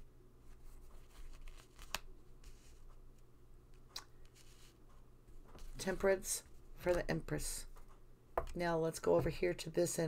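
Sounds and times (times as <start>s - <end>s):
faint steady hum: 0.0s - 10.0s
cards rustling and tapping: 0.8s - 8.6s.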